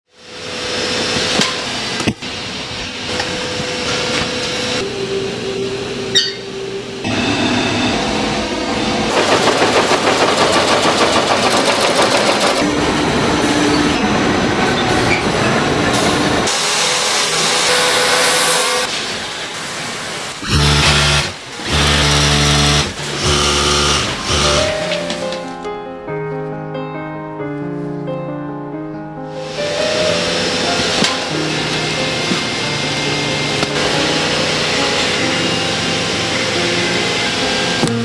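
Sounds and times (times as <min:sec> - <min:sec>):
weaving loom clattering: 0:09.1 - 0:12.7
sewing machine running: 0:09.1 - 0:12.8, 0:20.4 - 0:24.9
steady motor hum: 0:20.4 - 0:24.7.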